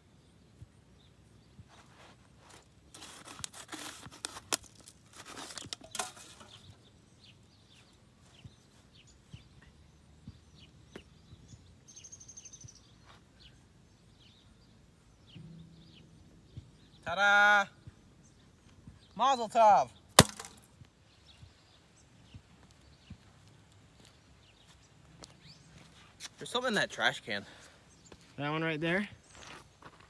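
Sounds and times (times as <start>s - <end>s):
rough rustling and crinkling: 1.6s - 9.2s
bird chirps: 5.6s - 20.1s.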